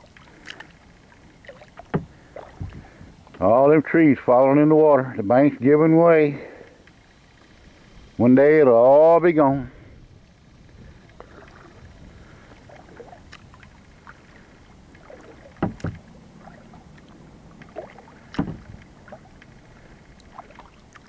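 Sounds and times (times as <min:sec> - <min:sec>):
water dripping off paddle: 0:00.0 - 0:03.4, 0:10.2 - 0:21.0
paddle stroke splashes: 0:00.0 - 0:03.5, 0:09.7 - 0:21.0.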